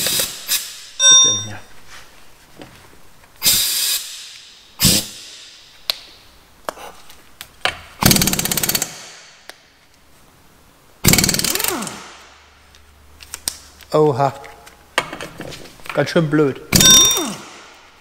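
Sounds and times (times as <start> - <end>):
impact wrench hammering: 8.0 - 9.2, 11.0 - 12.3, 16.7 - 17.7.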